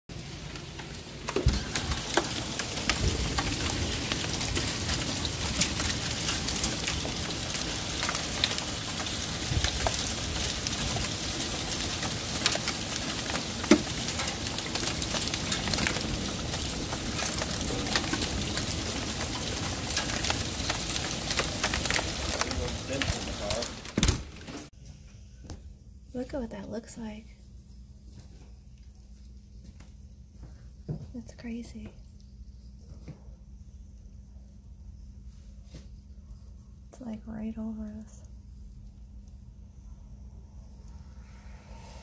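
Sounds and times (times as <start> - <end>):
heavy rain pouring: 0.1 - 24.7.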